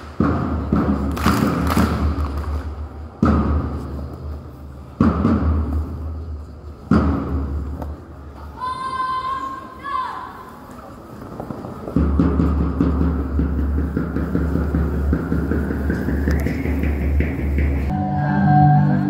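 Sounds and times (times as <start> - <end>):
big drum booming: 12.0 - 18.0.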